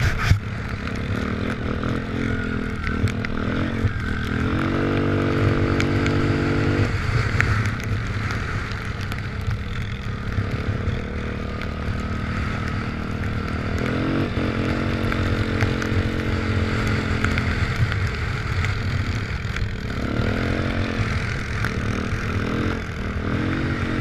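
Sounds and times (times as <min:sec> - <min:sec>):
quad engine revving: 0:00.0 - 0:07.8, 0:09.8 - 0:24.0
low wind rumble: 0:00.0 - 0:24.0
ticks and clatter: 0:07.2 - 0:23.2.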